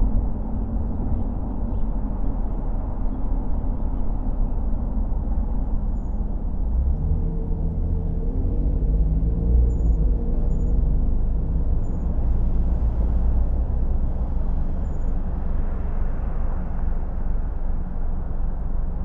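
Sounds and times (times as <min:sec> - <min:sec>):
car tyre and engine rumble: 0:00.0 - 0:19.0.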